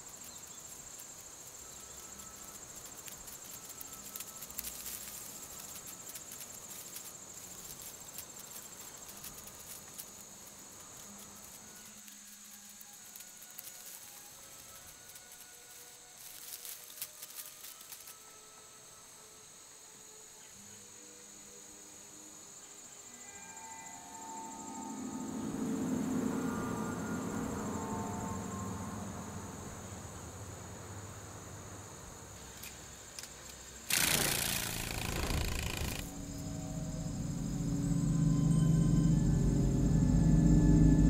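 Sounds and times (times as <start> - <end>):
soft ambient music: 0.0 - 33.9, 34.8 - 41.0
crickets chirring: 0.0 - 41.0
loud rushing noise: 33.9 - 41.0.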